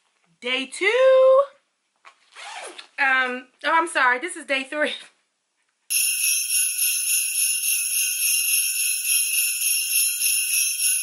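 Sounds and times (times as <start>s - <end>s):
sleigh bells jingling: 5.9s - 11.0s.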